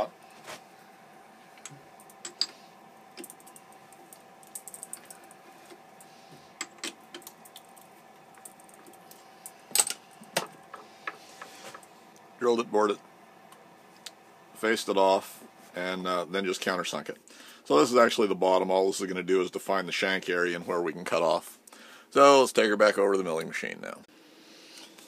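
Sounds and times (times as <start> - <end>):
faint steady hum: 0.0 - 25.0
metallic clicks and clinks: 4.4 - 5.2.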